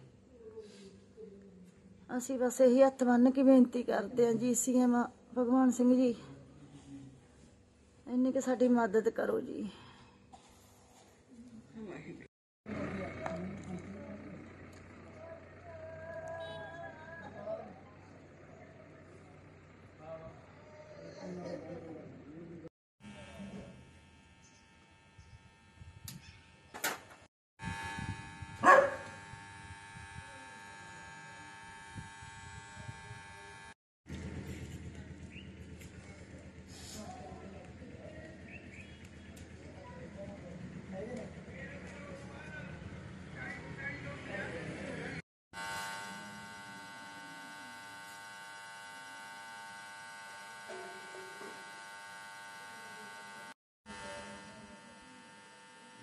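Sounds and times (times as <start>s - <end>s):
electrical hum: 23.0s - 34.4s, 45.6s - 56.0s
dog barking: 28.6s - 29.1s.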